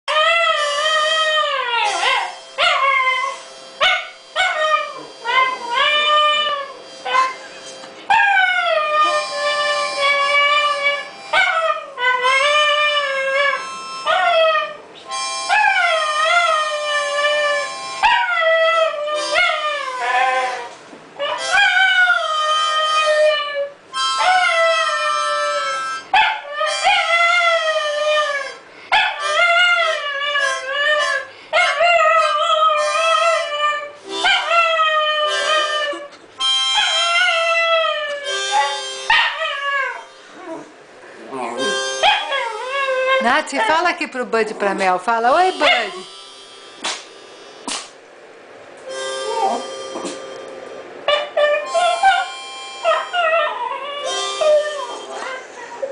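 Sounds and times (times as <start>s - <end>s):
dog howling: 0.1s - 7.4s, 15.5s - 36.1s, 36.7s - 40.7s, 41.4s - 43.8s, 49.2s - 50.2s, 51.1s - 55.9s
harmonica chords: 0.1s - 20.6s, 21.2s - 40.4s, 41.2s - 47.8s, 48.8s - 55.8s.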